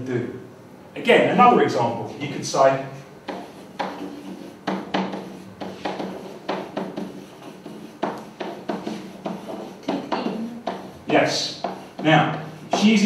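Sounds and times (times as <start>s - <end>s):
pen knocking on whiteboard: 3.2s - 13.0s.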